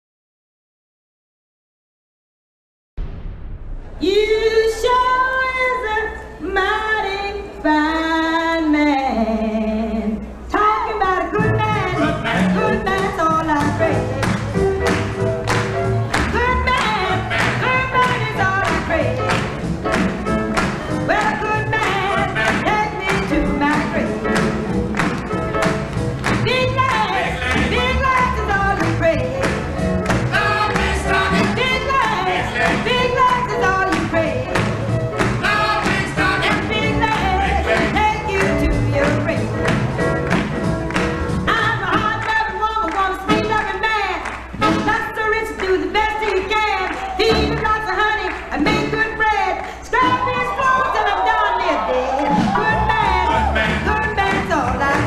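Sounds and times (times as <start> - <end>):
band bass and beat: 13.6 - 42.2, 52.3 - 55.0
person singing: 41.5 - 55.0.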